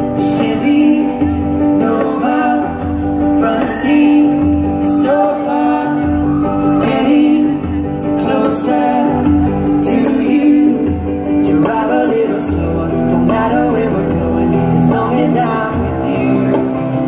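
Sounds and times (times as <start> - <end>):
acoustic guitar: 0.0 - 17.0
upright bass: 0.0 - 17.0
voices singing: 0.0 - 17.0.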